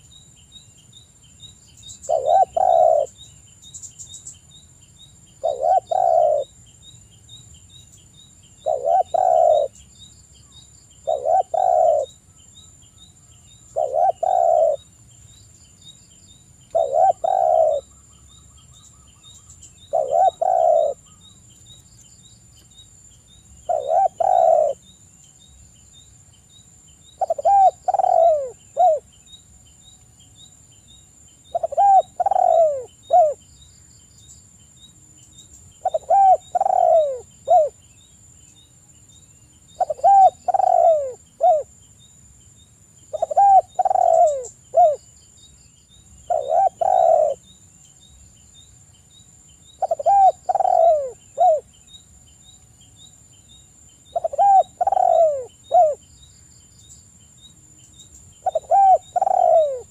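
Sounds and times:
dove cooing: 0:02.0 - 0:03.2, 0:05.4 - 0:06.5, 0:08.6 - 0:09.8, 0:11.0 - 0:12.2, 0:13.7 - 0:14.8, 0:16.7 - 0:18.0, 0:19.9 - 0:21.2, 0:23.7 - 0:24.8, 0:27.2 - 0:29.1, 0:31.5 - 0:33.4, 0:35.8 - 0:37.8, 0:39.8 - 0:41.7, 0:43.1 - 0:45.0, 0:46.3 - 0:47.4, 0:49.8 - 0:51.7, 0:54.1 - 0:56.0, 0:58.4 - 0:59.9.

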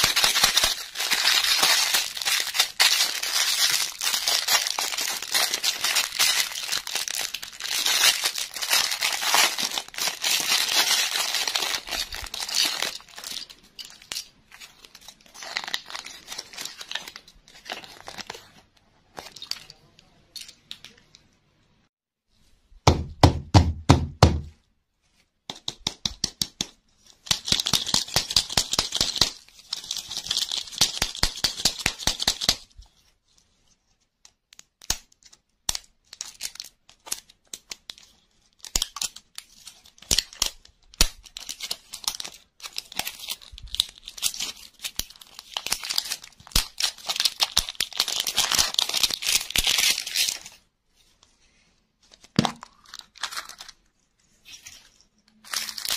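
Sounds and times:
foil wrapper crinkling and tearing: 0:00.0 - 0:18.6, 0:27.3 - 0:32.6, 0:35.7 - 0:50.6, 0:52.1 - 0:53.9, 0:55.4 - 0:55.9.

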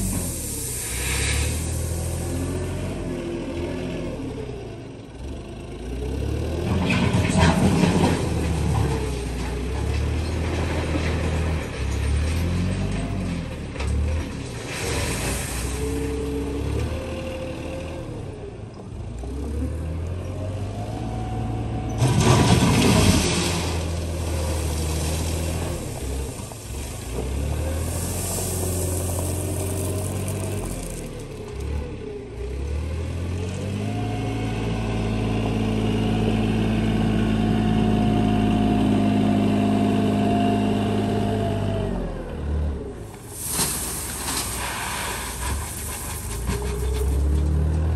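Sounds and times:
rush of gravel: 0:00.0 - 0:03.6, 0:06.8 - 0:17.1, 0:22.0 - 0:32.5, 0:43.0 - 0:47.9
wheel loader engine revving: 0:00.0 - 0:47.9.

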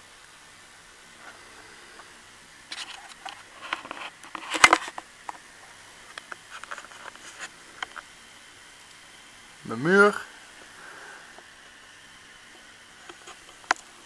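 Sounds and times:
faint steady hiss: 0:00.0 - 0:14.0
camcorder handling rustles and clicks: 0:02.7 - 0:05.1.

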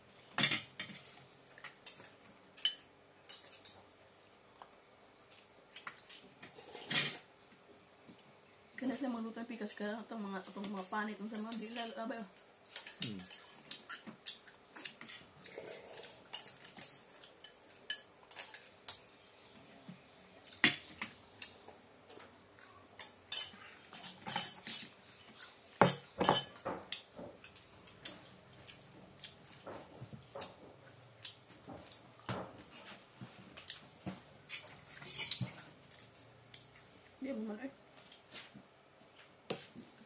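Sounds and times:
cutlery clinking on metal plate: 0:01.8 - 0:03.8, 0:12.7 - 0:14.1, 0:15.5 - 0:19.1, 0:23.0 - 0:25.0, 0:25.8 - 0:26.9.

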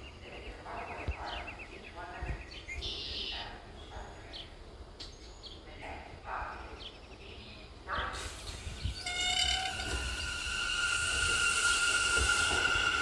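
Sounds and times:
subway train rumble: 0:00.0 - 0:13.0
high steady ringing tones: 0:09.0 - 0:13.0.

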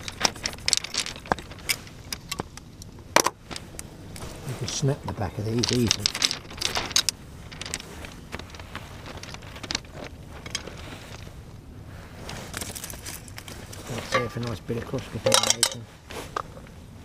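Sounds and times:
cooking gear clicking and knocking: 0:14.0 - 0:14.5, 0:15.2 - 0:15.8.

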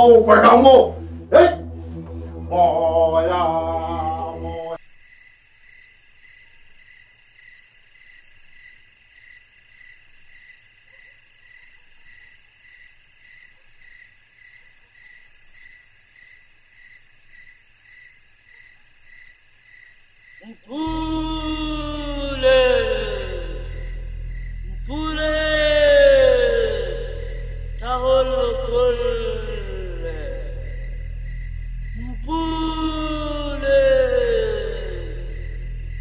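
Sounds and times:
music with a voice: 0:00.0 - 0:04.8, 0:20.7 - 0:36.0
crickets chirping: 0:04.0 - 0:36.0.

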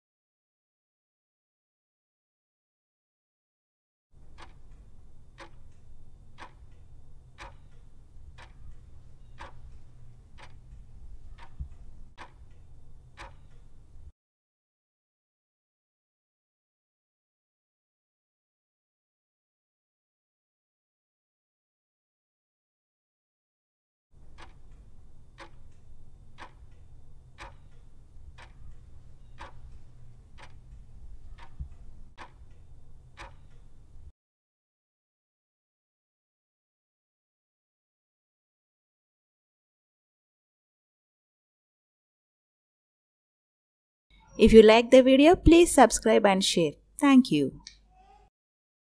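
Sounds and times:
clock ticking: 0:04.2 - 0:14.1, 0:24.2 - 0:34.1
low steady hum: 0:04.2 - 0:14.1, 0:24.2 - 0:34.1.

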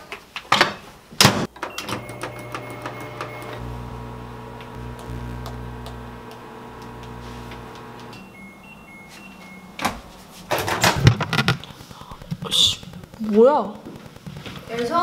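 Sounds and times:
keypad beeps: 0:01.6 - 0:03.6, 0:08.0 - 0:09.9
microwave oven humming: 0:01.7 - 0:09.2.

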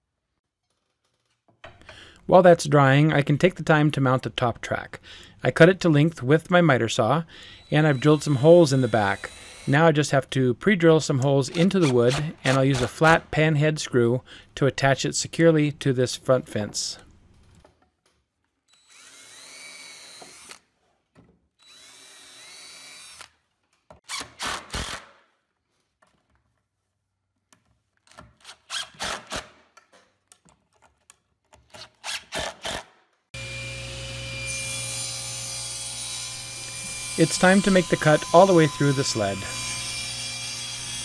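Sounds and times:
cordless drill whining: 0:07.5 - 0:09.7, 0:18.7 - 0:20.6, 0:21.6 - 0:23.3
table saw running: 0:33.4 - 0:41.0.

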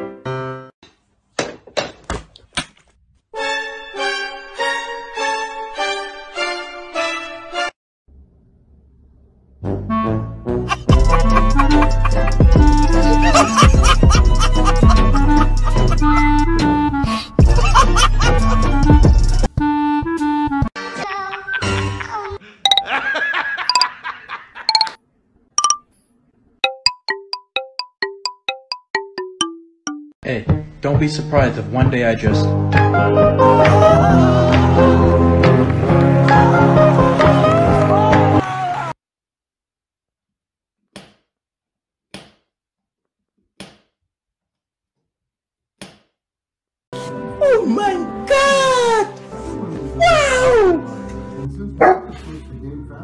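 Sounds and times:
chime-like dings: 0:22.7 - 0:22.9, 0:23.7 - 0:23.9, 0:24.7 - 0:25.0, 0:25.6 - 0:25.8
plucked bell-like notes: 0:22.7 - 0:22.9, 0:24.7 - 0:25.0, 0:25.6 - 0:25.8, 0:26.6 - 0:30.2.

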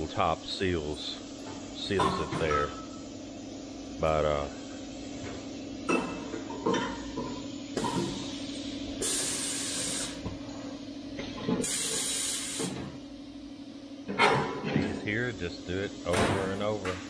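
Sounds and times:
steady machine hum: 0:00.0 - 0:17.0
air hissing from machinery: 0:07.8 - 0:10.2, 0:11.5 - 0:12.9.

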